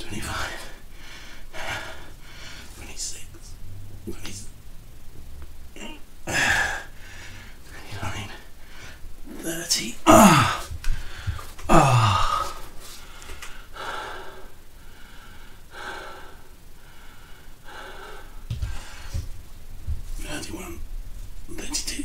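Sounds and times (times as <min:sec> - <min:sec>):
man gasping and breathing hard: 0:10.1 - 0:19.2.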